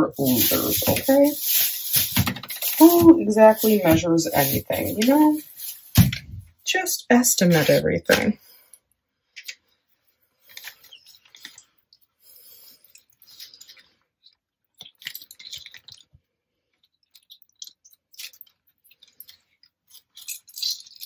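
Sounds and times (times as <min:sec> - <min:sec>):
lemon squishing and crackling: 0:00.0 - 0:06.1, 0:10.4 - 0:16.2, 0:16.8 - 0:21.0.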